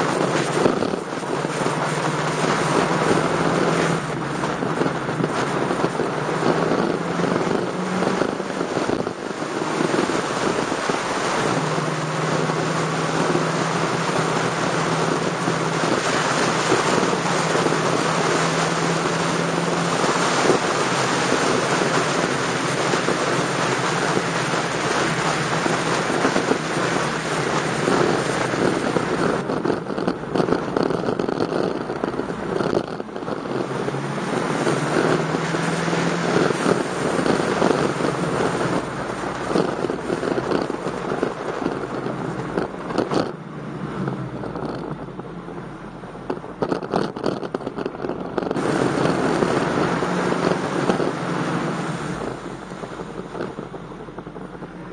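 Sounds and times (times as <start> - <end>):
motorcycle engine cruising: 0.0 - 54.9
wind rush over microphone: 0.0 - 54.9.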